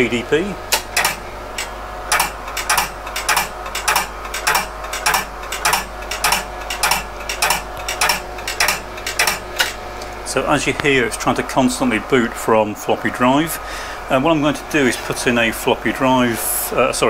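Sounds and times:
hum of drive and computer fans: 0.0 - 17.0
floppy drive clicking: 0.7 - 10.2.

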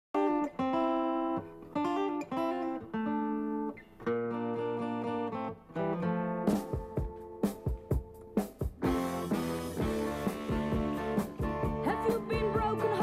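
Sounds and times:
guitar playing ringing chords: 0.2 - 13.0
drum kit: 6.4 - 13.0.

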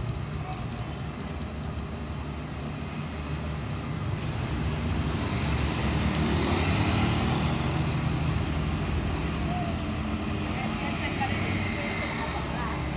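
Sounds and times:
street traffic rumble: 0.0 - 12.9.

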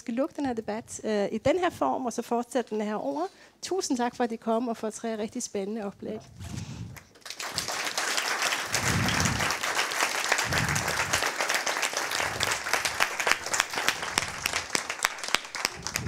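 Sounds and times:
audience applauding: 7.0 - 16.0.

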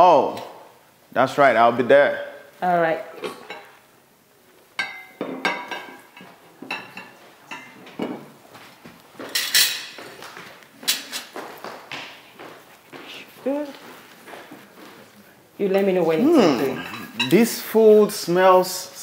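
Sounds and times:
dishes and cutlery clinking: 3.2 - 3.8, 4.8 - 8.4, 9.2 - 11.4, 15.6 - 17.7.

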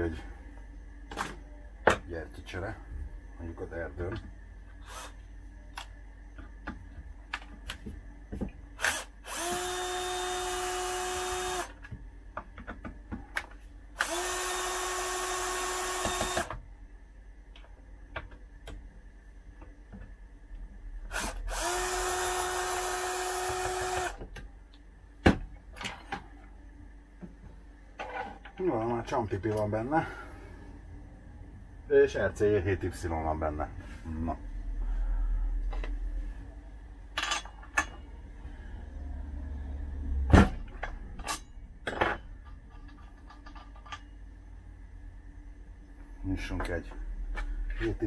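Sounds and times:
cordless drill whine: 4.8 - 5.2, 8.8 - 11.8, 14.0 - 16.6, 21.1 - 24.2.

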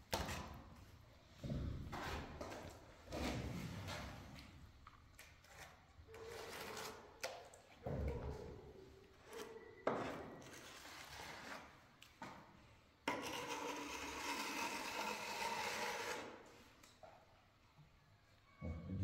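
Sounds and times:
trowel scraping plaster: 5.2 - 7.6, 9.2 - 11.9, 13.1 - 16.6.

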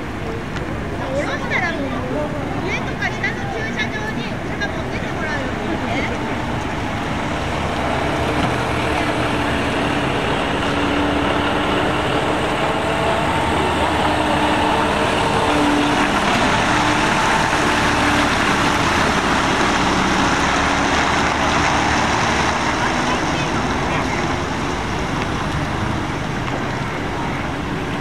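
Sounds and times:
loud vehicle exhaust: 5.8 - 28.0.

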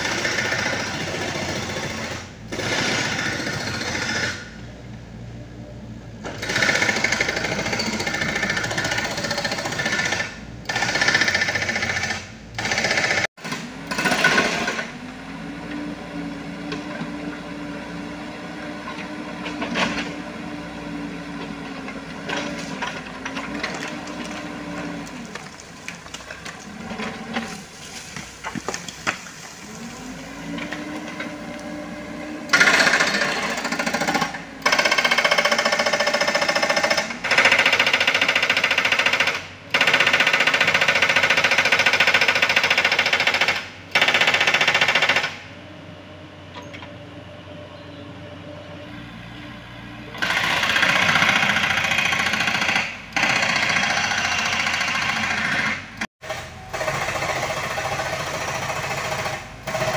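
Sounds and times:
mini excavator engine running: 0.0 - 59.9
hydraulic breaker hammering rock: 50.2 - 59.9.

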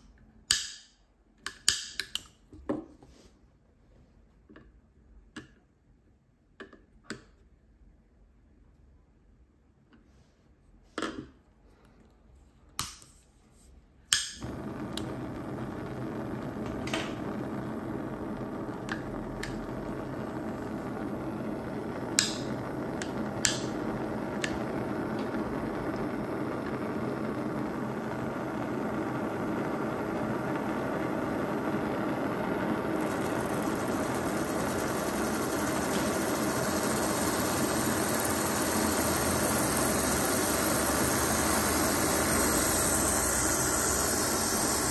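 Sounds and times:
gas burner lighting with a pop: 0.5 - 2.2, 14.1 - 44.9
gas burner hissing: 14.1 - 44.9
lighter clicking: 14.1 - 44.9
small engine turning: 32.9 - 44.9.

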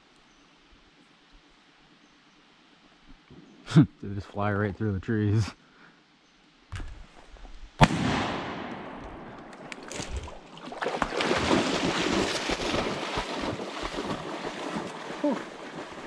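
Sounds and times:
shotgun shot with echo: 7.8 - 9.3
water splashing and sloshing: 9.1 - 16.0.

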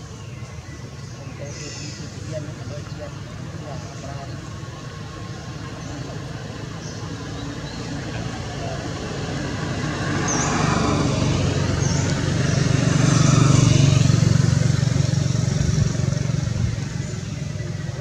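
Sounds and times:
vehicle passing by: 3.8 - 18.0.

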